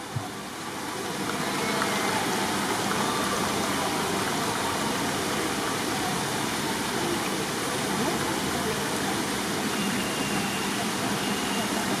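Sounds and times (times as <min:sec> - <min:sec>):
crowd applauding: 0:00.9 - 0:04.3.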